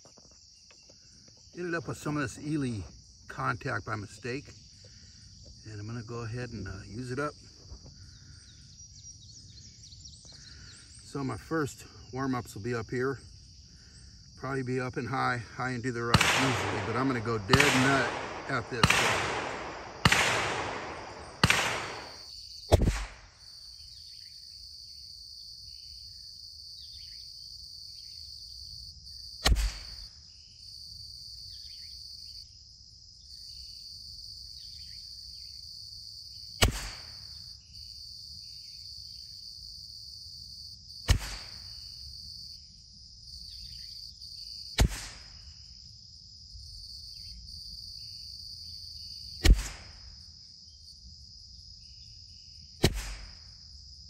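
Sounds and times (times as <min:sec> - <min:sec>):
high insect chorus: 0:00.0 - 0:54.0
rifle shots: 0:16.1 - 0:23.3, 0:29.4 - 0:30.0, 0:36.6 - 0:37.2, 0:41.1 - 0:41.7, 0:44.8 - 0:45.3, 0:49.4 - 0:50.0, 0:52.8 - 0:53.4.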